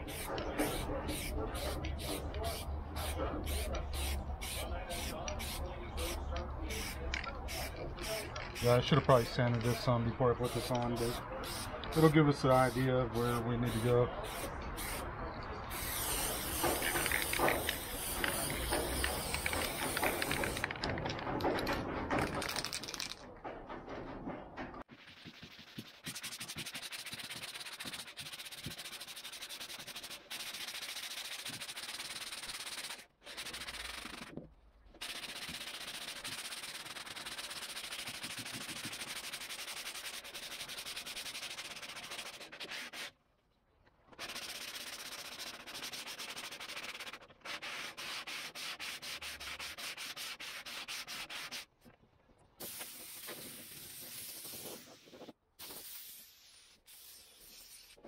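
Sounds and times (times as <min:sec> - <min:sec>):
compressed air hissing: 0:00.0 - 0:08.9, 0:15.7 - 0:20.6, 0:52.6 - 0:58.0
sandpaper rasping on filler: 0:24.9 - 0:34.3, 0:35.0 - 0:43.1, 0:44.2 - 0:51.7.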